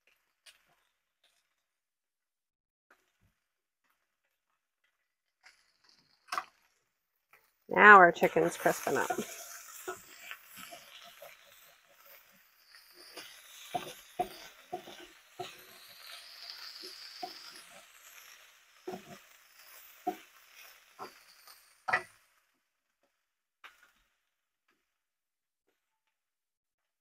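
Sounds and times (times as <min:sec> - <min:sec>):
oil popping: 0:03.8 - 0:07.5, 0:08.1 - 0:22.3
chicken sizzling in a skillet: 0:03.9 - 0:22.9.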